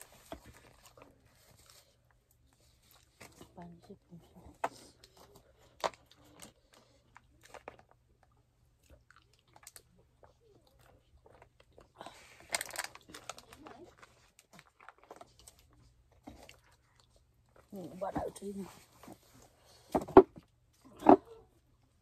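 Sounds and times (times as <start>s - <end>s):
person chewing: 8.8s - 12.0s.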